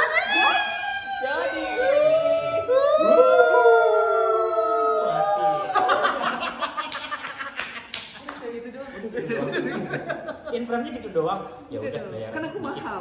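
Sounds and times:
men shrieking high-pitched wails: 0.0 - 6.2
people laughing: 4.9 - 11.0
hand claps: 6.8 - 8.6.

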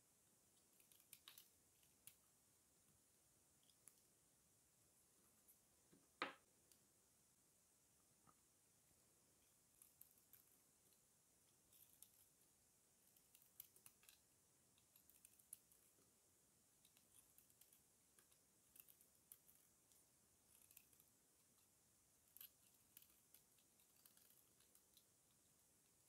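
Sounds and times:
knife shaving soap: 0.5 - 2.4, 9.3 - 26.0.

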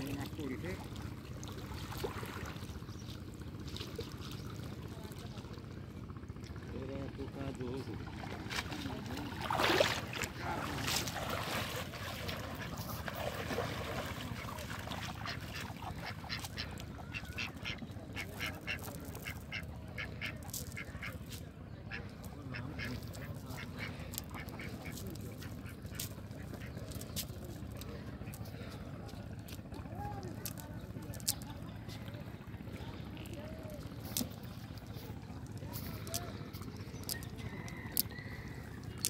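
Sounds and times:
low background rumble: 0.0 - 39.0
ducks quacking: 10.4 - 27.1.

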